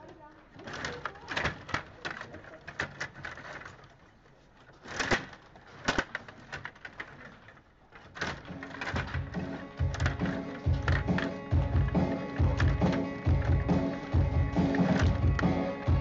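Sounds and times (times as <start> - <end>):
table hockey players clacking: 0.0 - 16.0
music: 8.6 - 16.0.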